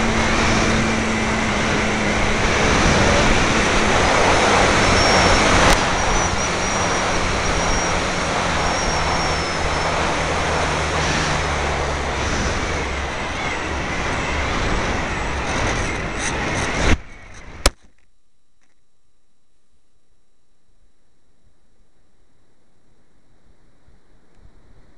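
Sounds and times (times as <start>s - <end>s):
electric motor and propeller whine: 0.0s - 17.7s
wind rush over microphone: 0.0s - 17.7s.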